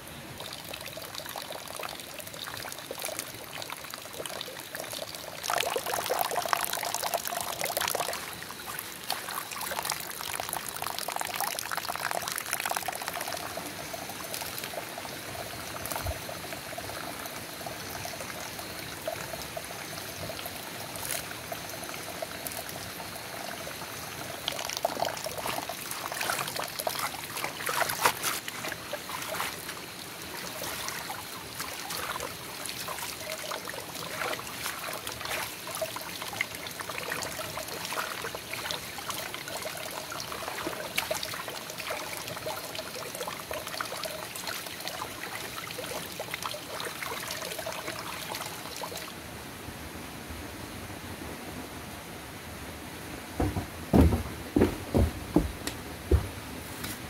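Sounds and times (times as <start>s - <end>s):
water running into plastic basin: 0.4s - 49.1s
greens splashing in water: 24.9s - 36.0s.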